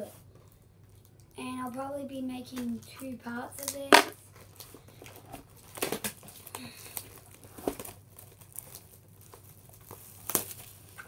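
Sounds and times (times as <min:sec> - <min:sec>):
plastic shrink-wrap crinkling and tearing: 0:03.6 - 0:11.0.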